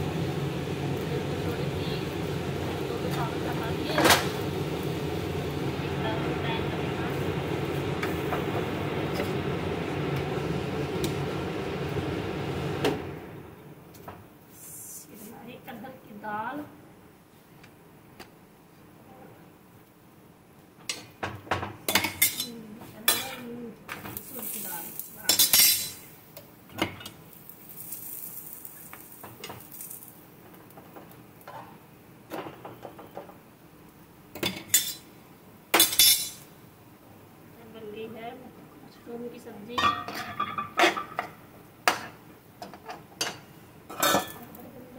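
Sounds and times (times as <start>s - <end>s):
bread sizzling in oil: 0.0s - 13.4s, 24.0s - 32.0s
gas burners rushing: 0.0s - 13.6s
metal spoon clinking on pan: 21.9s - 22.5s, 25.3s - 26.0s, 35.8s - 36.4s, 43.2s - 44.5s.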